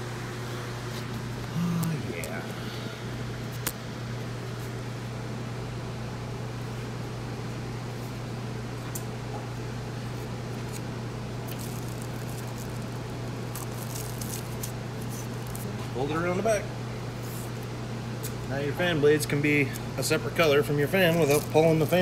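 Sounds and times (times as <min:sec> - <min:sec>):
steady low hum: 0:00.0 - 0:22.0
plastic bag crinkling: 0:11.5 - 0:15.7, 0:21.0 - 0:22.0.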